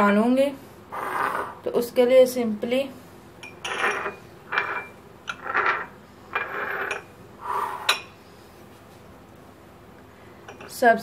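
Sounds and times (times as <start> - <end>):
glass clinking: 3.4 - 5.8
glass bowls scraping on countertop: 3.5 - 7.1.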